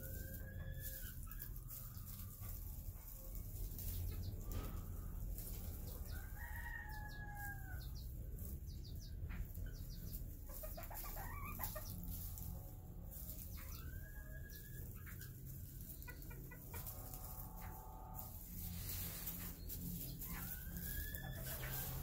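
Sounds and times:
steady low hum: 0.0s - 6.2s, 6.9s - 22.0s
chickens clucking: 0.0s - 22.0s
rooster crowing: 6.0s - 7.9s.

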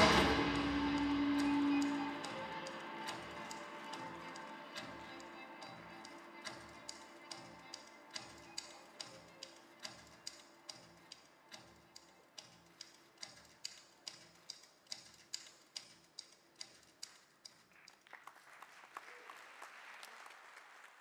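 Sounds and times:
audience applause: 0.0s - 6.4s, 17.7s - 21.0s
soft ticking beat music: 0.0s - 17.2s.

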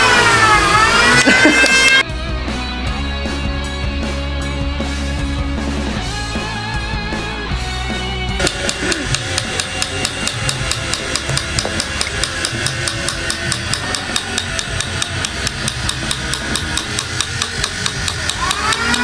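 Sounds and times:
small hammer tapping metal: 8.4s - 19.0s.

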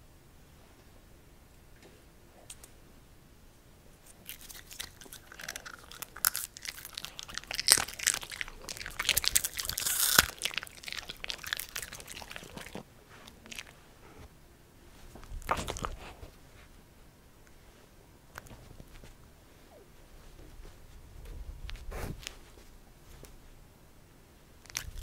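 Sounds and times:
dogs crunching popcorn: 4.1s - 13.8s, 15.2s - 16.2s, 24.6s - 25.0s.

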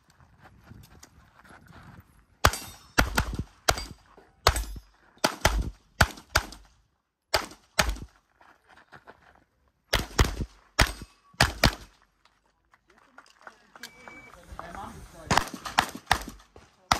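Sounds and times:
pistol shots: 2.4s - 6.7s, 7.3s - 8.1s, 9.9s - 11.9s, 15.3s - 16.9s.

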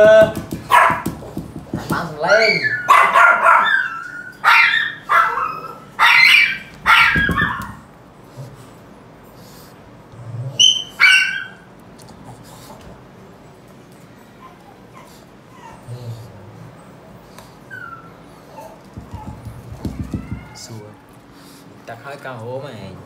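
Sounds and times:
dog barking and yelping: 0.6s - 1.1s, 2.2s - 7.9s, 10.5s - 11.7s, 17.7s - 20.6s.

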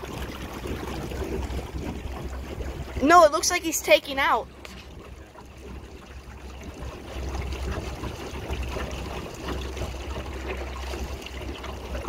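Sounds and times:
steady low rumble: 0.0s - 12.0s
water splashing along hull: 0.0s - 12.0s.

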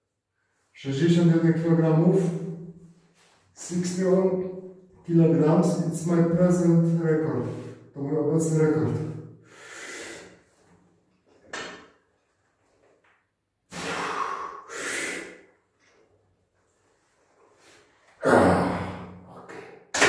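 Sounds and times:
man breathing forcefully: 9.4s - 10.5s, 13.7s - 15.4s.

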